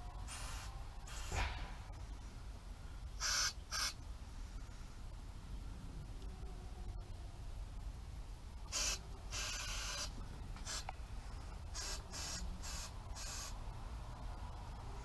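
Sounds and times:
compressed air hissing bursts: 0.2 - 1.7, 3.2 - 4.0, 8.7 - 10.9, 11.7 - 13.6.

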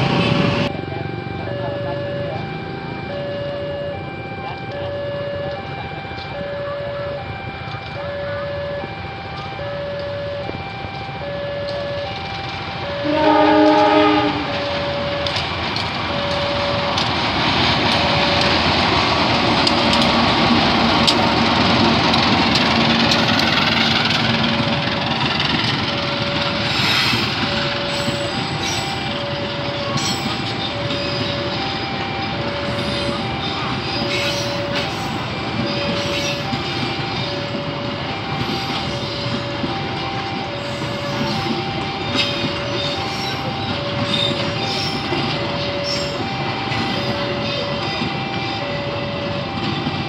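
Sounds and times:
train rumbling past: 0.0 - 50.0
locomotive horn: 12.7 - 15.4
train wheel clicks: 14.6 - 29.2.

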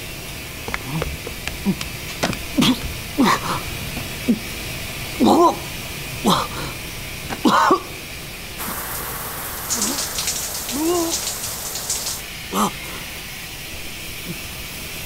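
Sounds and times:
shower spray hissing: 8.6 - 12.2.

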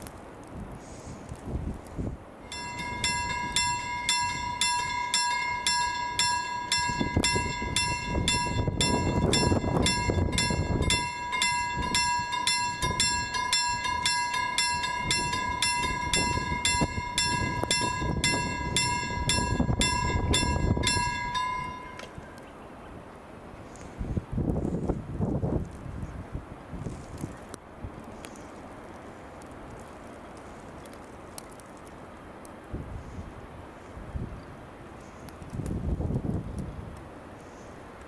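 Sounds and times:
level-crossing bell ringing: 2.4 - 22.2.

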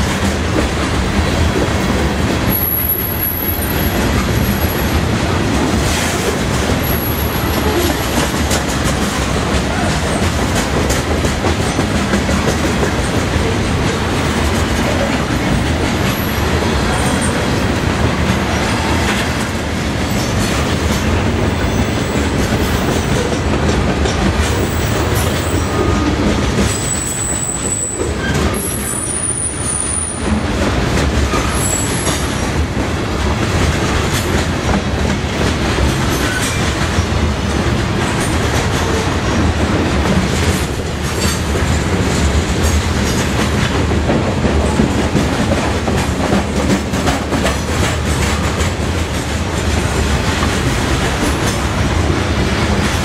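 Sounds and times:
train wheels clattering on rails: 0.0 - 53.0
high-pitched wheel squeals: 26.7 - 30.2.

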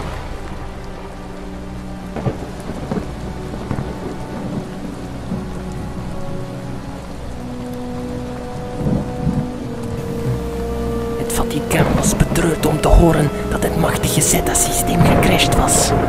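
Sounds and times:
heavy rain: 0.0 - 16.0
low synth notes: 0.0 - 16.0
thunder rumbling: 0.0 - 16.0
thunder cracks: 11.6 - 16.0.

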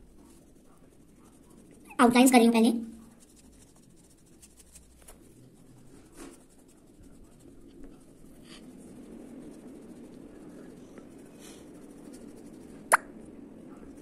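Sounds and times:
pencil scratching on paper: 0.0 - 12.7.

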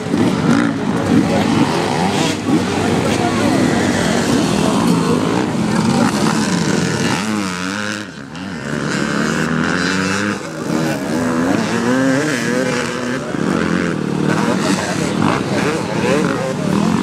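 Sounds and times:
dirt bike engines revving: 0.0 - 17.0.

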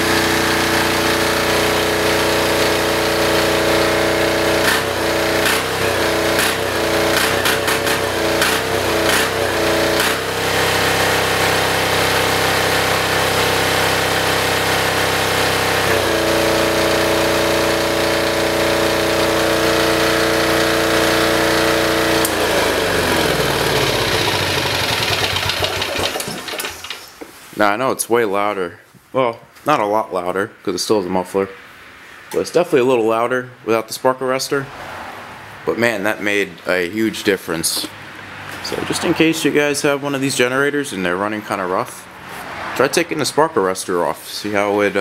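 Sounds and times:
diesel generator running: 0.0 - 27.1, 36.8 - 40.9.

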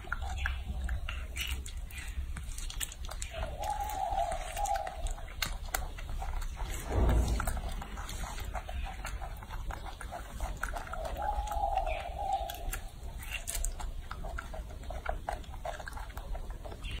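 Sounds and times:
monkey chewing and lip-smacking: 0.0 - 17.0
monkey coo call: 3.4 - 5.5, 10.7 - 13.8
dull thump: 6.8 - 8.2.

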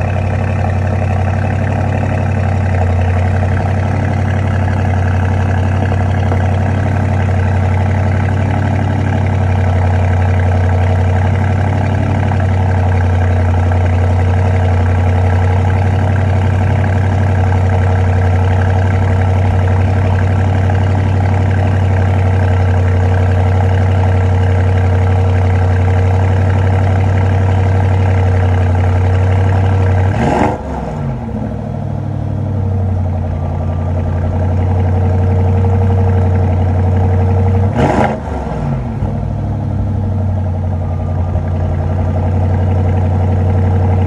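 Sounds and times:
car engine idling: 0.0 - 44.0
engine revving: 28.8 - 31.6, 35.6 - 39.4.

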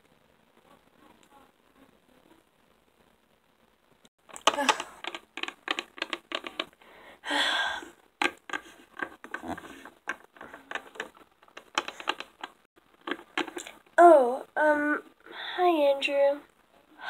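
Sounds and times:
plastic figurines tapping on table: 4.3 - 6.7, 8.2 - 13.8.

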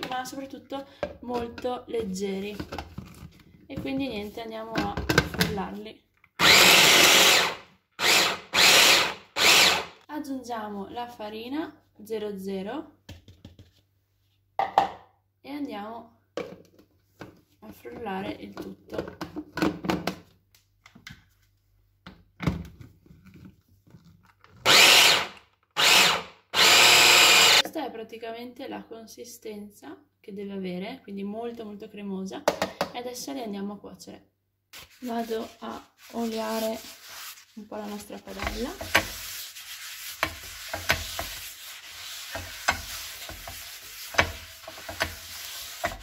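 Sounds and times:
paper towel scrubbing a frying pan: 34.8 - 46.0.

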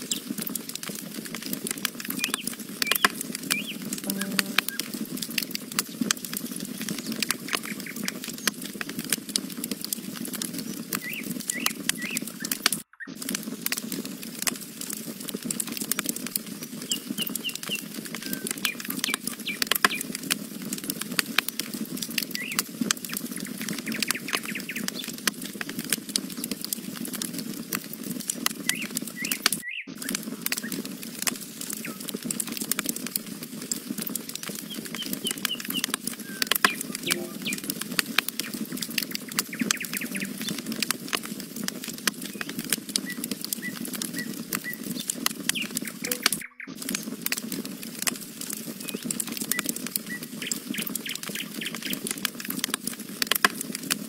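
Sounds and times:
campfire crackling and popping: 0.0 - 54.0
birds chirping: 2.2 - 4.9, 36.7 - 37.7, 39.2 - 40.8, 45.5 - 47.2.

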